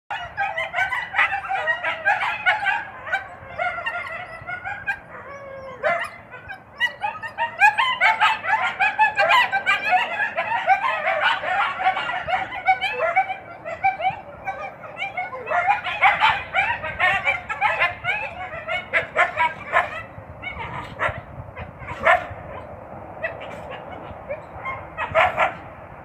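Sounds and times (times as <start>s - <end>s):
coyotes yipping and whining: 0.1s - 26.0s.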